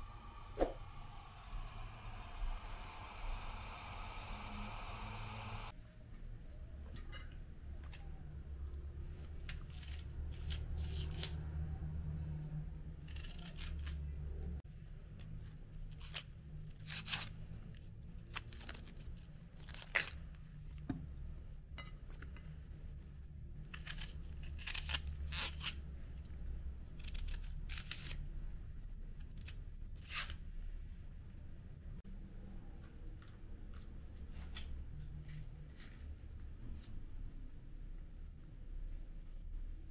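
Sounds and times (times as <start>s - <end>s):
low steady hum: 0.0s - 9.3s
onion skins cut and torn: 9.3s - 11.4s, 13.0s - 14.2s, 15.2s - 17.4s, 18.2s - 20.2s, 23.6s - 28.4s, 29.2s - 30.4s.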